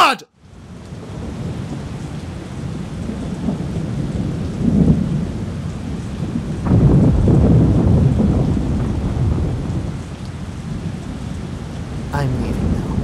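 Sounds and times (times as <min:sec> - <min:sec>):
low rumbles of thunder: 0:01.0 - 0:10.1
heavy rain pouring: 0:02.7 - 0:13.0.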